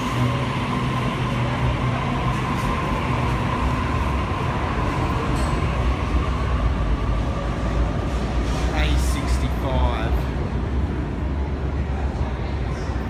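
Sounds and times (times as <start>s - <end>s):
electric train running: 0.0s - 9.0s.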